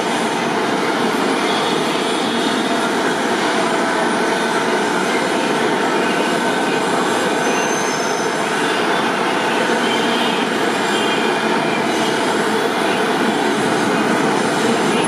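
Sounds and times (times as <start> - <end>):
dense city traffic noise: 0.0 - 15.0
light-rail train rumbling: 0.0 - 15.0
faint wheel squeal: 7.4 - 8.4.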